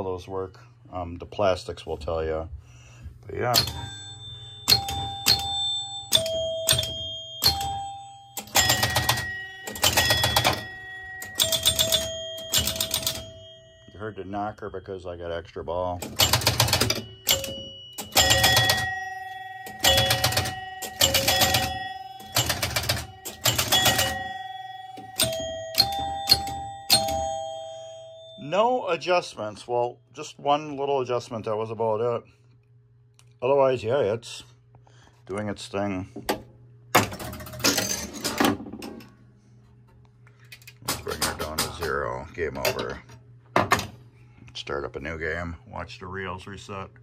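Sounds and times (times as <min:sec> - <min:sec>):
pinball machine scoring chimes: 0:03.4 - 0:29.2, 0:37.0 - 0:39.0.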